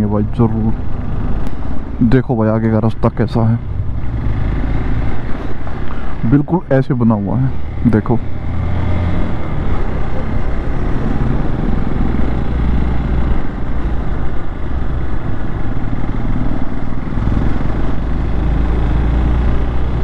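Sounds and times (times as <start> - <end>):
motorcycle engine running: 3.4 - 6.3.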